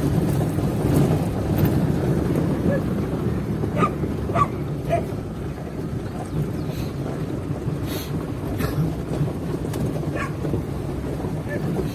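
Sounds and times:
vehicle rumbling: 0:00.0 - 0:11.9
dog barking: 0:03.8 - 0:05.1, 0:10.1 - 0:10.4.

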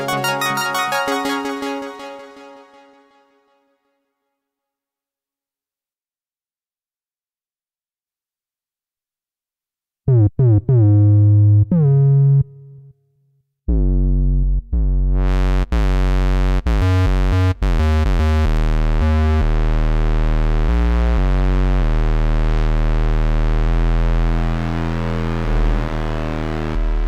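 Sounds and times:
synthesizer bass line: 0:00.0 - 0:03.0, 0:10.1 - 0:12.9, 0:13.7 - 0:27.0.

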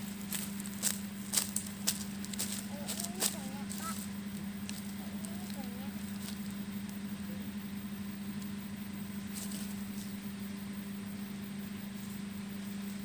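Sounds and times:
faint rustling in brush: 0:00.0 - 0:06.6, 0:09.2 - 0:10.3
low engine-like hum: 0:00.0 - 0:13.0.

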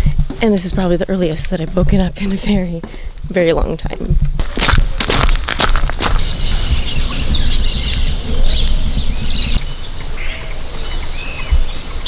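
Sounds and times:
low rumble: 0:03.9 - 0:10.9
steady high hiss: 0:06.0 - 0:12.0
bird chirps and calls: 0:06.2 - 0:12.0.

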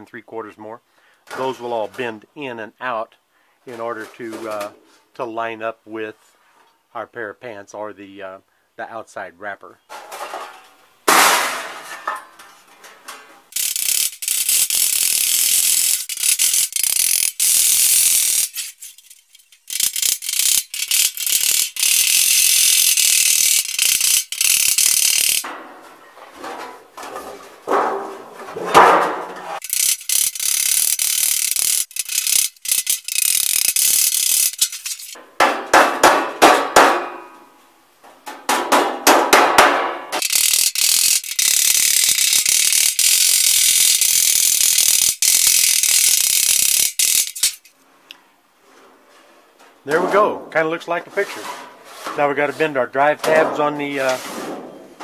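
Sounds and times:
sheet metal scraping: 0:24.8 - 0:29.7, 0:48.6 - 0:55.0.

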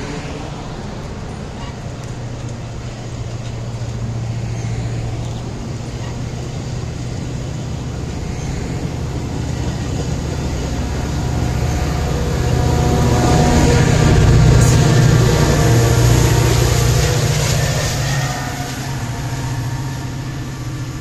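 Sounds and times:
diesel locomotive engine hum: 0:00.0 - 0:21.0.

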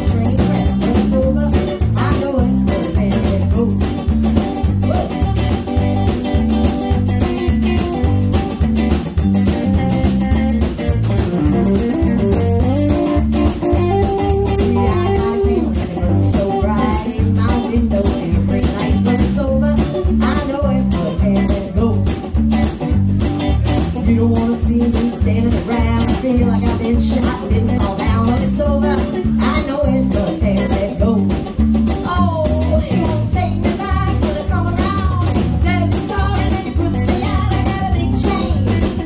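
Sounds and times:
live rock band playing: 0:00.0 - 0:39.0
tambourine rattling: 0:00.0 - 0:39.0.

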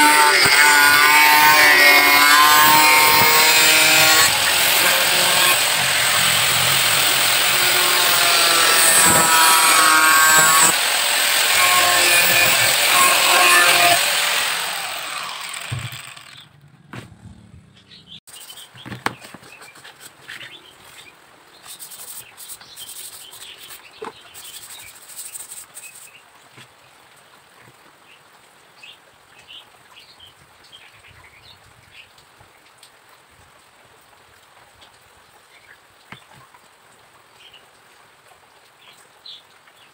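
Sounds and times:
circular saw cutting plywood: 0:00.0 - 0:16.6.

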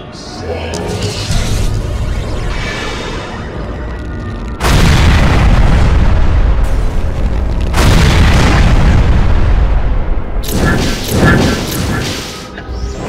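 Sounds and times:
heavy rumble: 0:00.2 - 0:12.0
explosion booms: 0:04.5 - 0:12.0.

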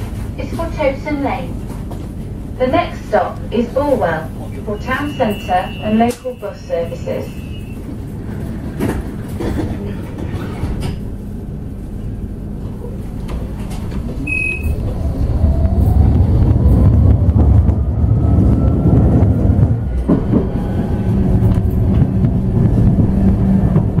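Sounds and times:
tram rumble: 0:00.0 - 0:24.0
short high beep: 0:04.8 - 0:06.6
tram motor whine: 0:10.2 - 0:24.0.

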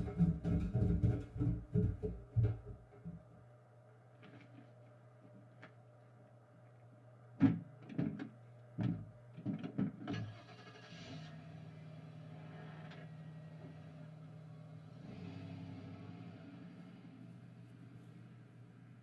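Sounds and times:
irregular knocks: 0:00.0 - 0:03.2.

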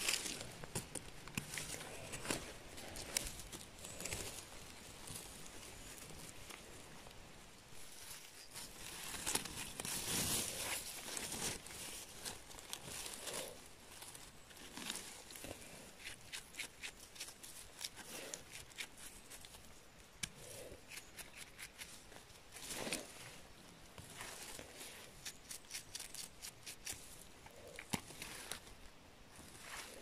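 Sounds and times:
rustle of moss and litter: 0:00.0 - 0:30.0
brush scratching mushrooms: 0:08.5 - 0:13.7, 0:14.6 - 0:23.4, 0:24.1 - 0:28.7.

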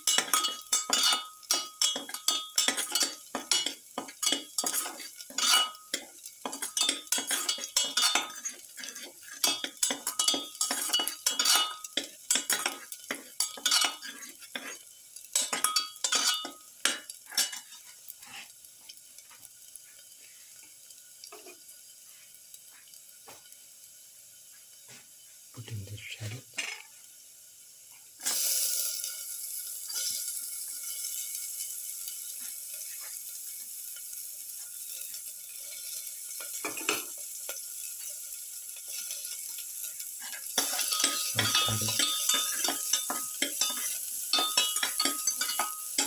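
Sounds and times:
metal spatula scraping pan: 0:00.0 - 0:18.5, 0:38.8 - 0:46.0
faint sizzle of oil: 0:00.0 - 0:46.0.

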